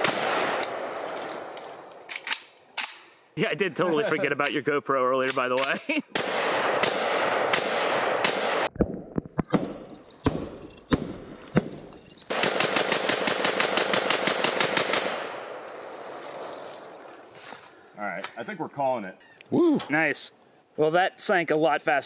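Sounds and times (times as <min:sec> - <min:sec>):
rifle shots: 0:00.0 - 0:00.9, 0:05.6 - 0:08.7, 0:09.5 - 0:15.6
rapid gunfire: 0:06.2 - 0:08.7, 0:12.3 - 0:15.4.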